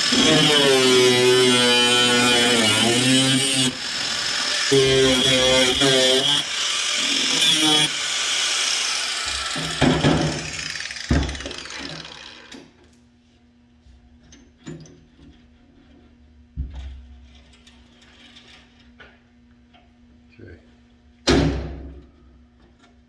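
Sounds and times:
angle grinder winding down: 0.0s - 12.5s.

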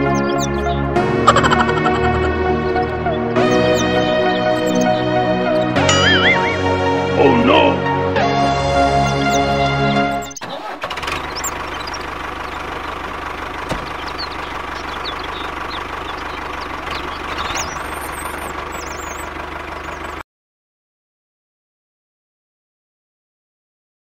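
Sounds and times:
machine humming: 0.0s - 7.2s, 7.8s - 20.2s
short high chirps: 5.8s - 6.7s.

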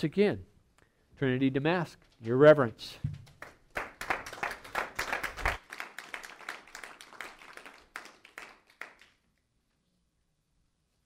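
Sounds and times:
congregation applauding: 3.3s - 9.3s.

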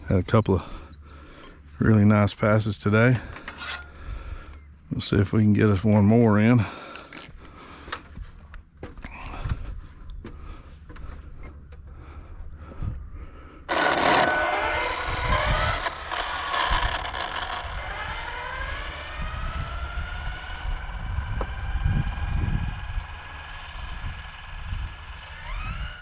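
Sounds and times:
high electric motor whine: 13.6s - 26.0s
loud rush of rc car: 13.6s - 26.0s.

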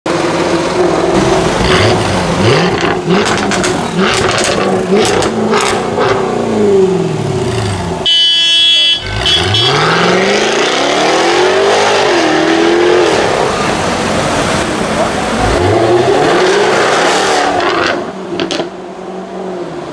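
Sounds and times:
car exhaust revving: 0.1s - 8.1s, 9.0s - 13.7s
exhaust cracks: 1.2s - 6.2s.

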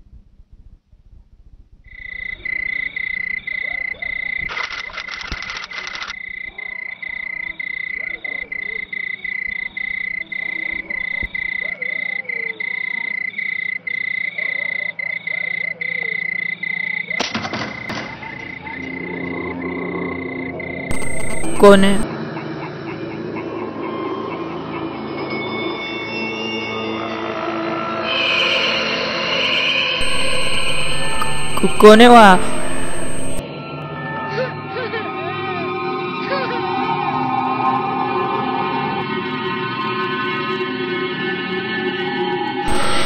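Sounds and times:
short bursts of noise: 4.4s - 6.2s, 20.9s - 22.0s, 30.0s - 33.4s, 42.7s - 43.0s
high-pitched animal trill: 42.6s - 43.0s.

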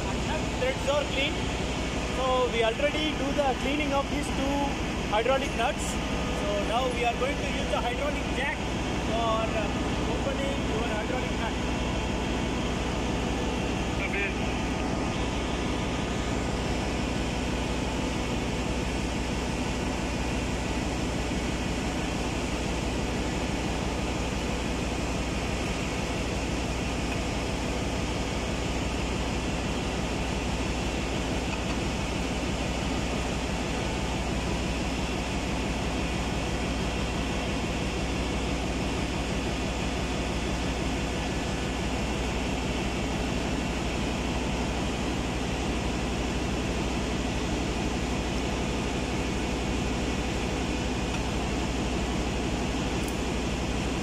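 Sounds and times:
engine room machinery drone: 0.0s - 54.0s.

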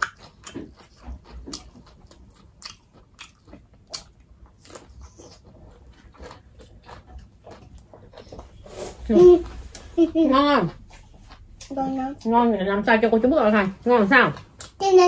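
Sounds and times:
biting and chewing food: 0.0s - 8.8s.

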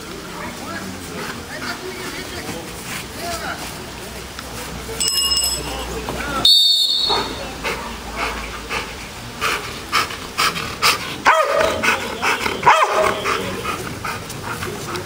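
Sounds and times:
dog barking: 7.0s - 7.4s, 11.2s - 13.6s.

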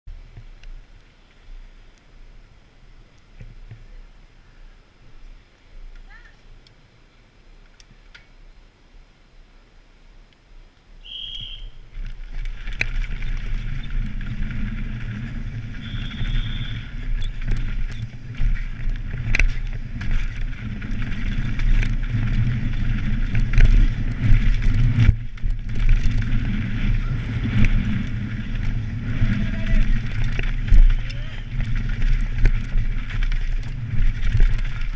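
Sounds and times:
bike rattling over rough dirt: 11.0s - 34.9s
wind rushing over microphone: 11.4s - 34.9s.

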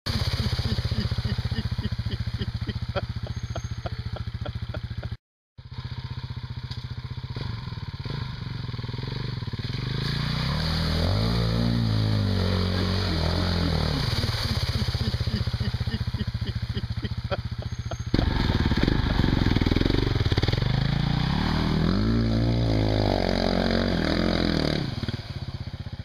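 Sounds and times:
water splashing: 0.1s - 3.4s, 9.8s - 21.6s
motorcycle engine thumping and revving: 0.1s - 13.9s, 16.3s - 26.0s.

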